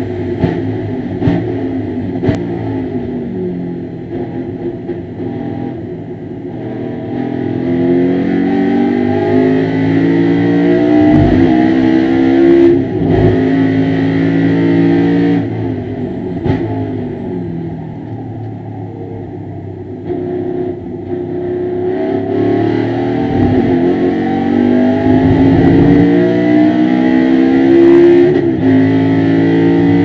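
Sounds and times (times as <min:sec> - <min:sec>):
race car engine revving hard: 0:06.5 - 0:17.4, 0:20.1 - 0:30.0.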